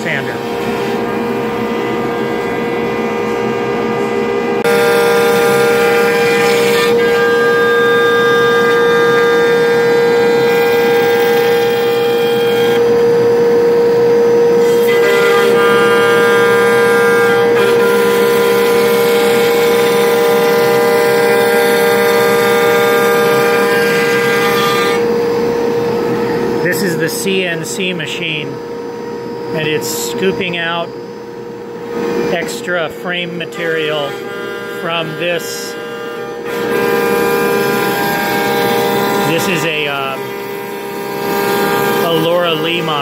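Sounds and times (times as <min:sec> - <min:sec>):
dust extraction: 0:00.0 - 0:01.1, 0:26.6 - 0:28.5, 0:32.3 - 0:34.2, 0:34.8 - 0:35.8, 0:36.7 - 0:40.6, 0:41.2 - 0:43.0
router spindle whine: 0:00.0 - 0:43.0
stroke sander running: 0:00.0 - 0:43.0.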